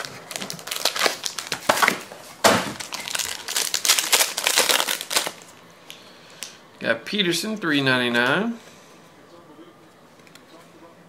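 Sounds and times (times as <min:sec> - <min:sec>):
foil wrapper crinkling and tearing: 0:00.0 - 0:05.5.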